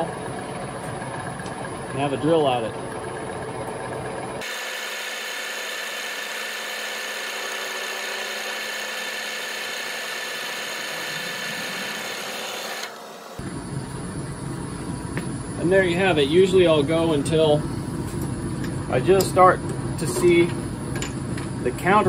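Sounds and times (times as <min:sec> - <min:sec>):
drill cutting hole: 0:04.4 - 0:13.4
metal lathe cutting steel: 0:04.4 - 0:13.4.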